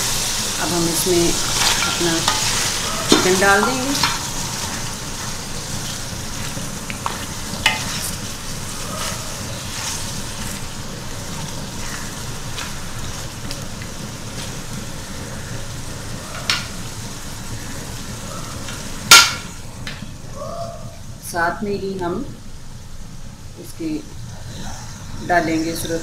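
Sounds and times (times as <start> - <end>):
chicken sizzling in hot oil: 0.0 - 19.8.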